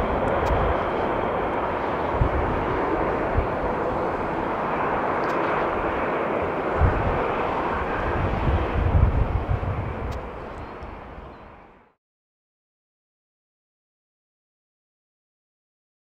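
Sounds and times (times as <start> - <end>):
distant jet engine roar: 0.0 - 12.0.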